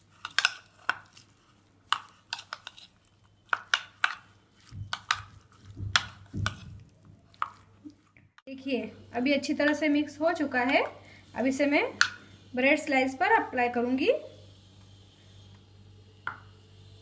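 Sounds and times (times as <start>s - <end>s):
spoon stirring in plastic bowl: 0.0s - 8.2s.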